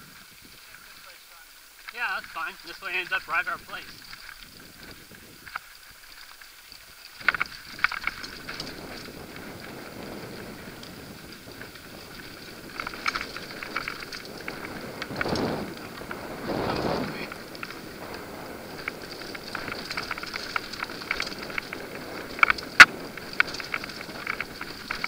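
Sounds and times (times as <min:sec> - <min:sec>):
tyres crunching over dirt: 0:00.0 - 0:25.0
bike rattling and clicking: 0:01.5 - 0:02.8, 0:03.8 - 0:25.0
wind on microphone: 0:03.5 - 0:05.6, 0:07.2 - 0:25.0.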